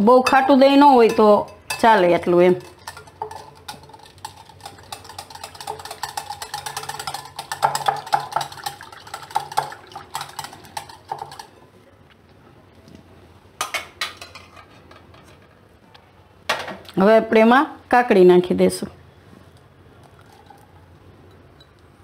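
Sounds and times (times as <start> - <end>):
whisk ticking against glass bowl: 0.3 - 11.6.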